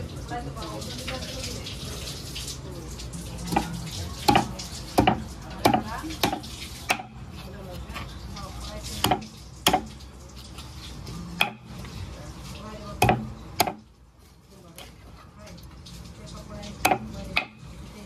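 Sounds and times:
cleaver chopping chicken on wooden board: 0:04.3 - 0:07.2, 0:09.0 - 0:09.9, 0:13.0 - 0:13.8.

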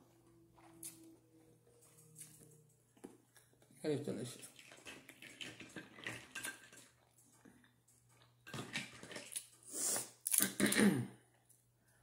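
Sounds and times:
chewing: 0:04.3 - 0:10.5.

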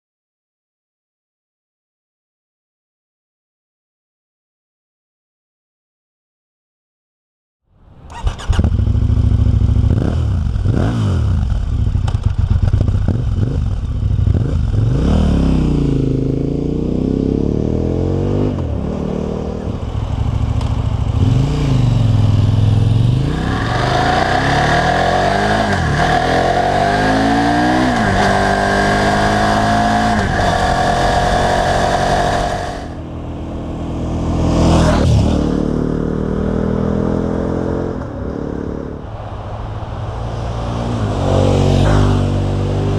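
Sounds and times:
motorcycle engine revving: 0:08.1 - 0:39.1, 0:40.1 - 0:42.9.

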